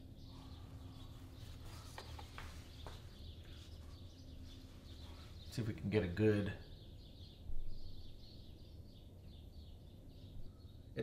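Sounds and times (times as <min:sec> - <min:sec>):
steady low hum: 0:00.0 - 0:11.0
paper towel rustling: 0:01.1 - 0:05.4.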